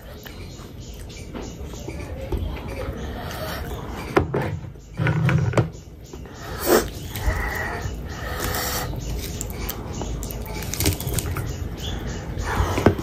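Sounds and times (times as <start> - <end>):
chewing and lip smacking: 6.6 - 11.5
fingers squishing rice: 6.6 - 11.5.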